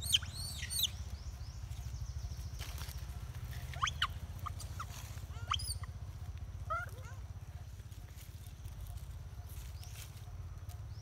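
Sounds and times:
baby monkeys squeaking: 0:00.0 - 0:01.2, 0:02.7 - 0:06.0
steady low rumble: 0:00.0 - 0:11.0.

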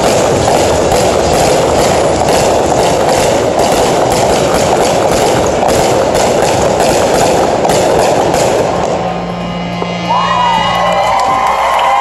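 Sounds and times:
fireworks crackling: 0:00.0 - 0:10.2
high rising and falling tones: 0:00.0 - 0:12.0
steady music tones: 0:00.0 - 0:12.0.

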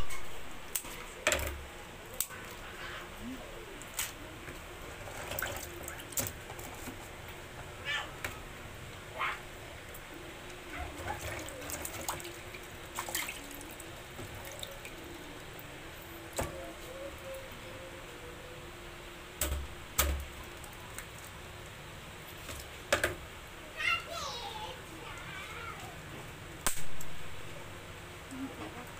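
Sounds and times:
water splashing and dripping: 0:10.5 - 0:15.0.

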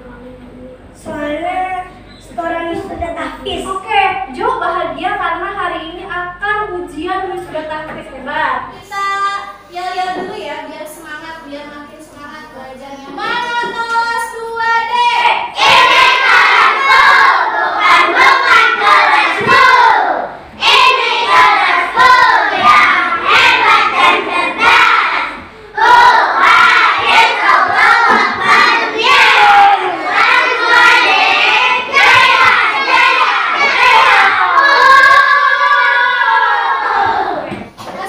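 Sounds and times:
children singing a chant: 0:14.8 - 0:38.0.

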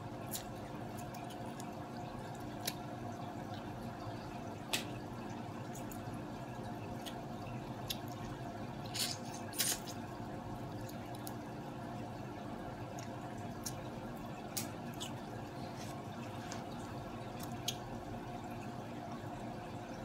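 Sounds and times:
steady low hum: 0:00.0 - 0:20.0
wet eating mouth sounds: 0:06.9 - 0:11.4, 0:12.8 - 0:18.0.

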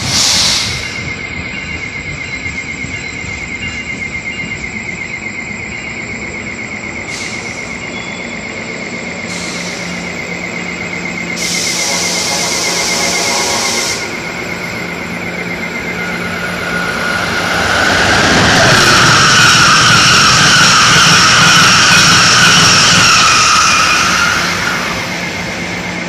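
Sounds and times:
loud hiss: 0:00.0 - 0:01.0, 0:07.0 - 0:07.8, 0:09.2 - 0:10.4, 0:11.0 - 0:14.3
train brakes squealing: 0:00.0 - 0:26.0
train wheels rumbling on rails: 0:00.0 - 0:26.0.

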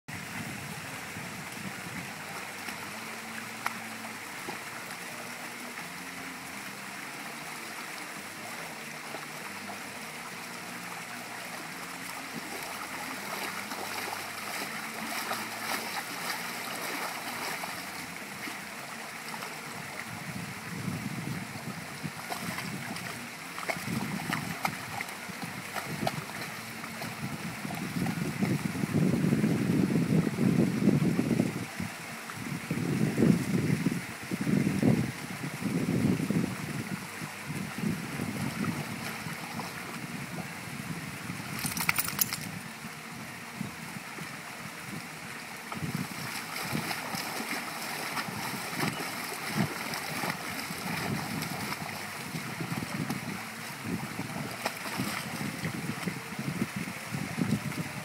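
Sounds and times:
moving water rushing: 0:00.1 - 0:58.0
dog splashing in water: 0:11.9 - 0:18.0, 0:41.5 - 0:42.5, 0:45.8 - 0:53.2.

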